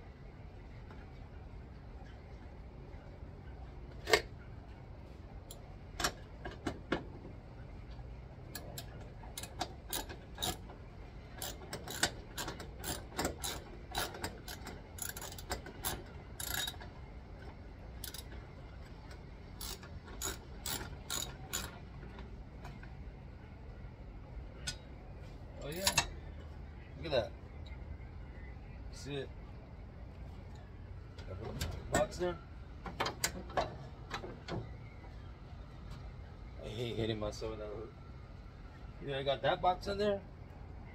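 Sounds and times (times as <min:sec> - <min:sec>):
ratchet clicking: 0:08.6 - 0:10.6, 0:11.3 - 0:16.8, 0:18.0 - 0:18.3, 0:19.6 - 0:21.8
metal tools clinking: 0:25.7 - 0:26.2.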